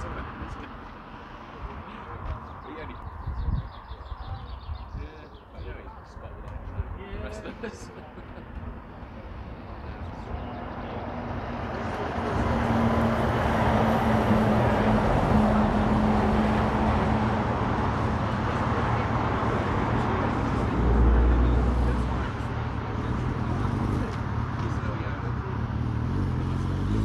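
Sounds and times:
fire truck driving: 0:08.3 - 0:27.0.

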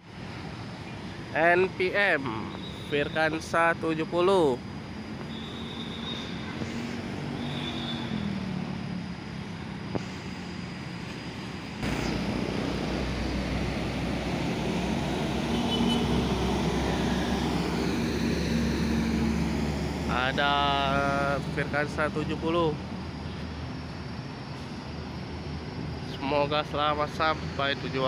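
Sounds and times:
diesel engine rumbling: 0:06.6 - 0:27.8.

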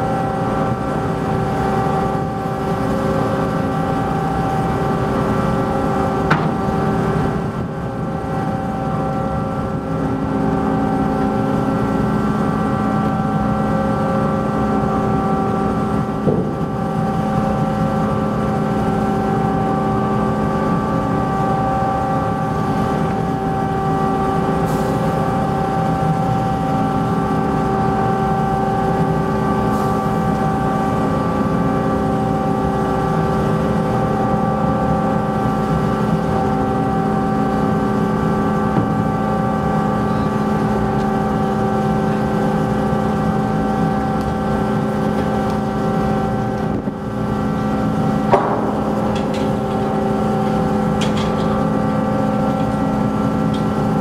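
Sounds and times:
ship engines droning: 0:00.0 - 0:54.0
single knock: 0:06.3 - 0:06.6, 0:48.3 - 0:48.8.

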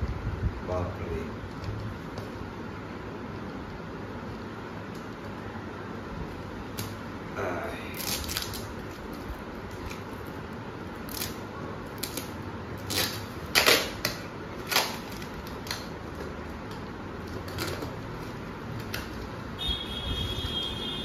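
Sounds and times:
cardboard ripping: 0:07.9 - 0:10.4, 0:11.0 - 0:16.1.

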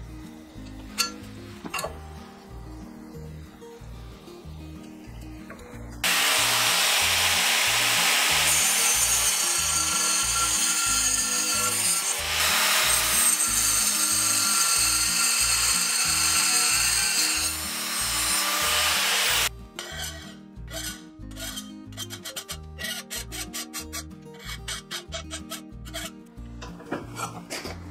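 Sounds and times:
angle grinder grinding steel: 0:06.0 - 0:21.7
file rasping on steel: 0:06.0 - 0:26.2.

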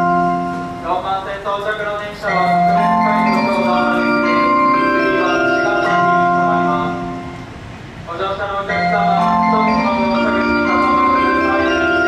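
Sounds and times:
chime tune over loudspeakers: 0:02.1 - 0:07.5, 0:08.4 - 0:12.0.

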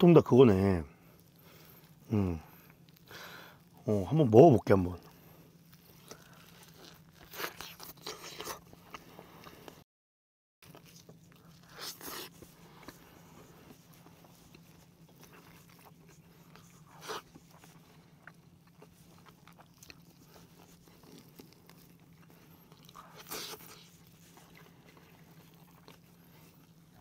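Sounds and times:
steady low hum: 0:00.0 - 0:09.8, 0:10.6 - 0:27.0
chicken tearing: 0:05.1 - 0:09.8, 0:10.6 - 0:27.0.

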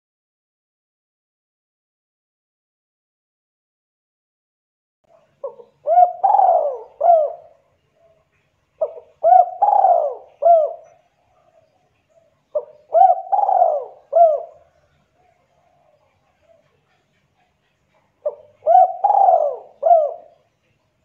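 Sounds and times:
dove cooing: 0:05.1 - 0:20.6.

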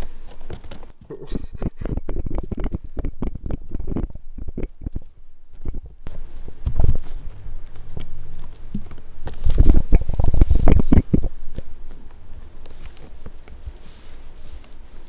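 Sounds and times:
kittens scuffling: 0:00.0 - 0:04.0, 0:04.9 - 0:15.0
fur rubbing against microphone: 0:06.0 - 0:15.0.

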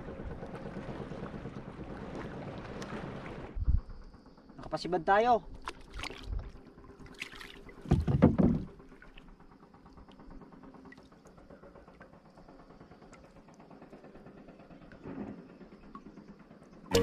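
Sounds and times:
knocks against boat hull: 0:07.8 - 0:08.7.

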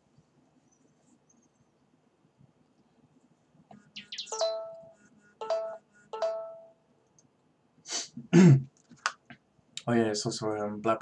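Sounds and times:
phone notification chime: 0:04.2 - 0:06.8.

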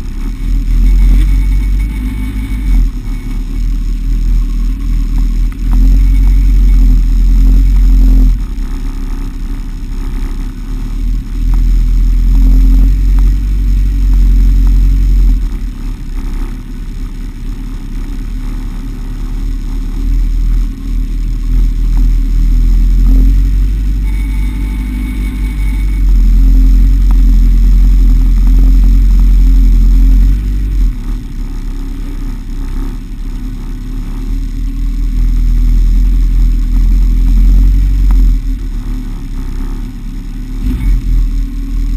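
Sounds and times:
motorcycle engine idling: 0:00.0 - 0:41.9.

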